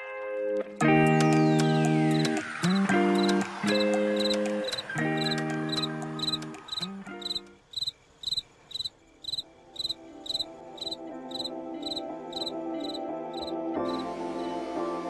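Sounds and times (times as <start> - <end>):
soft music with held notes: 0.0 - 7.6, 9.5 - 15.0
cricket chirping: 2.1 - 14.6.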